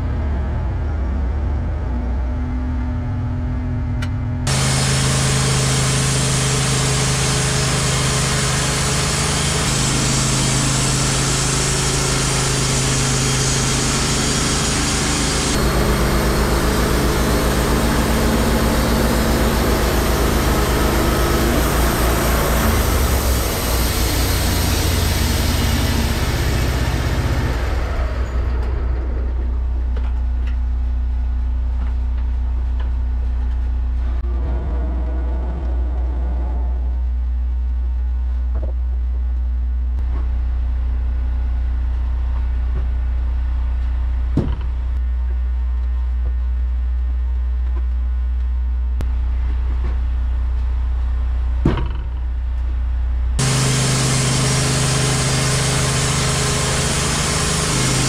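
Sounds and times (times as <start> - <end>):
band blade sawing log: 4.5 - 26.6, 53.4 - 58.0
sawmill engine running: 4.5 - 30.8, 33.9 - 37.5, 53.4 - 58.0.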